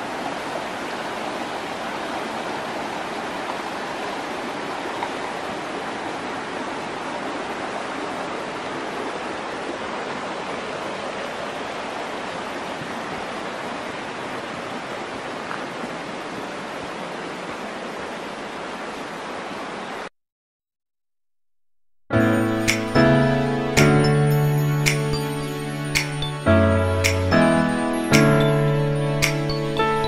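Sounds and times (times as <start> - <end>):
river water rushing over rocks: 0.0 - 20.1.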